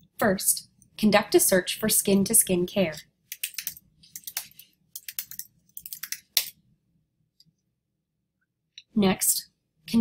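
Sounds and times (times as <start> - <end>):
computer keyboard typing: 3.3 - 6.6.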